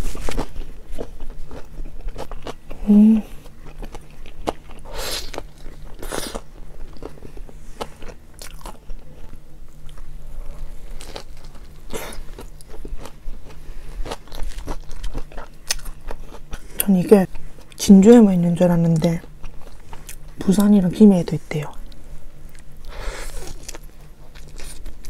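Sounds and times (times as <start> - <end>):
biting and crunching food: 0.0 - 20.7, 21.8 - 25.0
chewing with small clicks: 12.3 - 17.8, 23.5 - 25.0.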